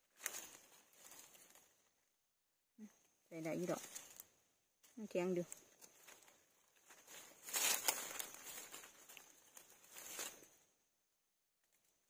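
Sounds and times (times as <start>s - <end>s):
dry leaves rustling and crackling: 0.0s - 1.8s, 3.5s - 4.3s, 5.4s - 10.6s.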